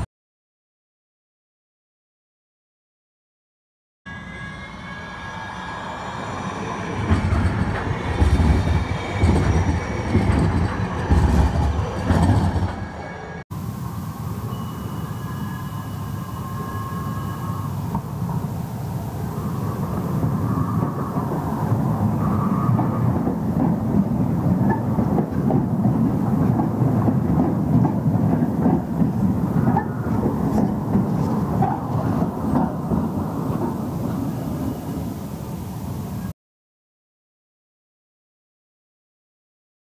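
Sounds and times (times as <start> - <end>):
light rail train passing: 4.1 - 36.3
wheels clattering over rail joints: 7.1 - 13.4, 19.8 - 34.9.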